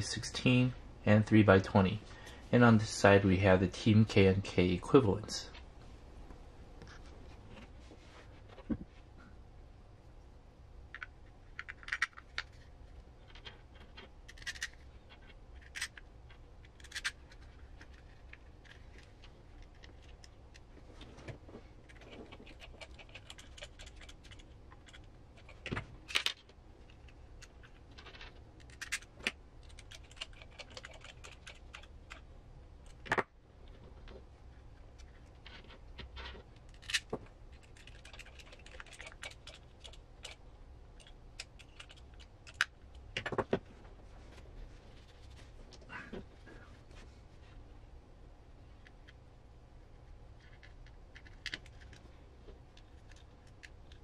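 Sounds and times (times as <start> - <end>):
low steady hum: 0.0 - 54.0
small parts clicking and clinking: 10.9 - 20.7, 21.8 - 32.2, 35.0 - 40.4.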